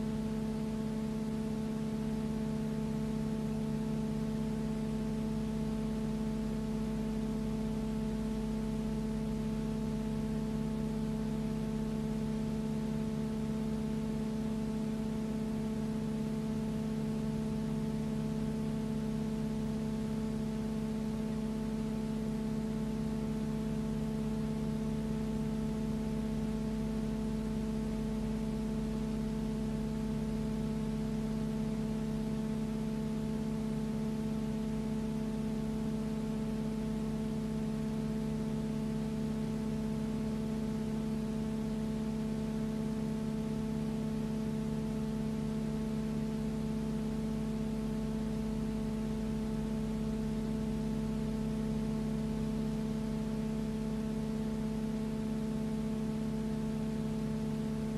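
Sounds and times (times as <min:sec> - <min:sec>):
steady machine hum: 0:00.0 - 0:57.9.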